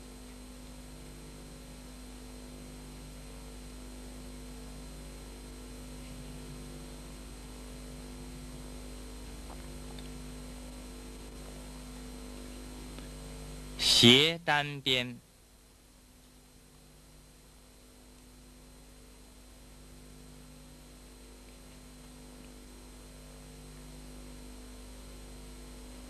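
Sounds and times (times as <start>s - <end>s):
electrical mains hum: 0.0s - 26.0s
steady hiss: 13.8s - 15.2s.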